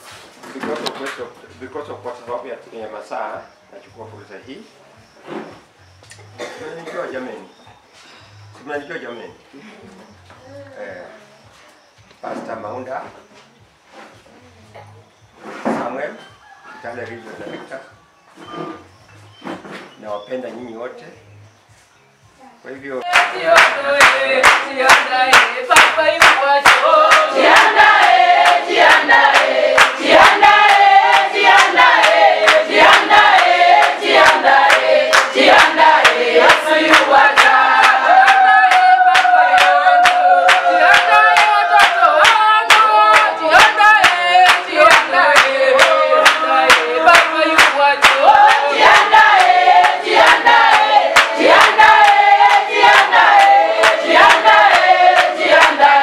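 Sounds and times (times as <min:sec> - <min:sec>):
congregation singing: 0:00.0 - 0:09.3, 0:23.0 - 0:56.0
hands clapping: 0:23.0 - 0:56.0.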